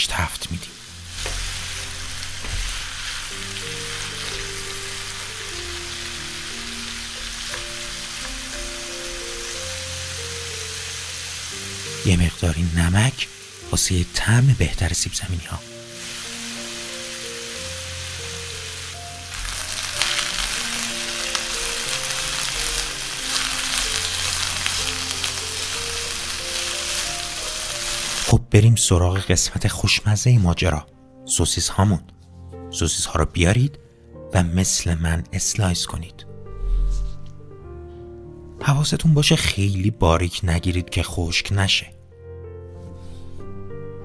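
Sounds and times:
soft background music: 0:00.0 - 0:44.0
vegetables sizzling in oil: 0:00.4 - 0:14.6, 0:15.3 - 0:28.3.

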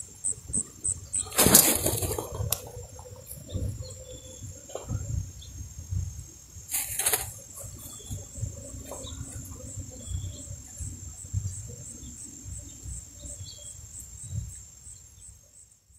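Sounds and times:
insects chirping in grass: 0:00.0 - 0:15.9
brief loud hiss: 0:06.7 - 0:07.3.

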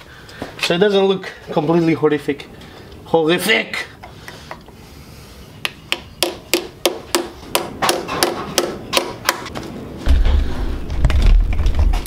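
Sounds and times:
hammer tapping plastic plugs: 0:05.6 - 0:09.5.

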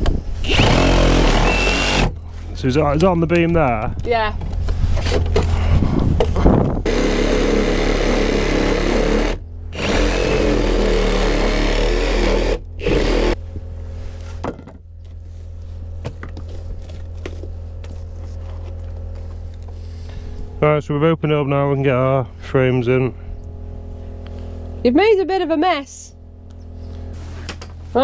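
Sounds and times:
low hum: 0:00.0 - 0:28.0
reciprocating saw cutting wood: 0:00.4 - 0:02.2, 0:06.8 - 0:13.4.

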